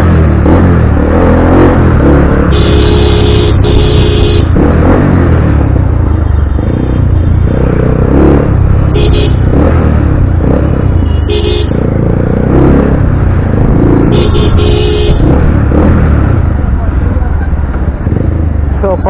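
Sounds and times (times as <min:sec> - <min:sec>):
motorcycle engine rumbling: 0:00.0 - 0:19.0
short horn honks: 0:02.5 - 0:04.5, 0:09.0 - 0:09.4, 0:11.0 - 0:11.8, 0:14.1 - 0:15.3.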